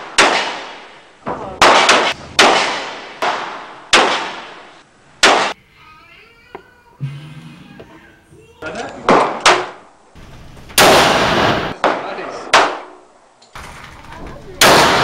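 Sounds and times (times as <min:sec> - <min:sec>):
revolver shots echoing indoors: 0:01.6 - 0:05.6, 0:09.2 - 0:13.0, 0:14.6 - 0:15.0.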